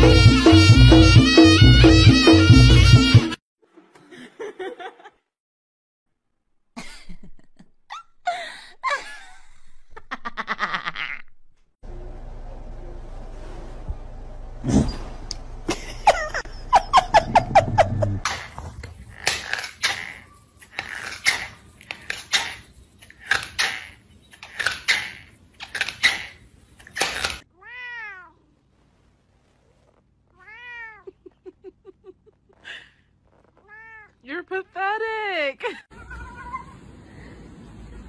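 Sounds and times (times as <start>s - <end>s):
squeaky calls: 19.1s - 26.4s, 35.9s - 36.9s.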